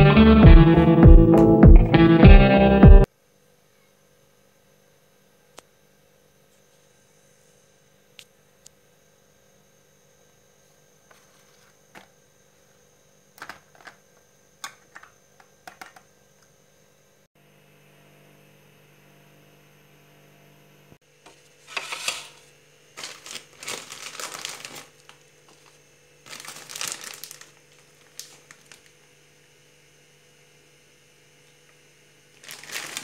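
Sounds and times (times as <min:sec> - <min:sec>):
faint steady hum: 0:03.0 - 0:33.0
material crinkling and rustling: 0:21.3 - 0:29.0, 0:32.4 - 0:33.0.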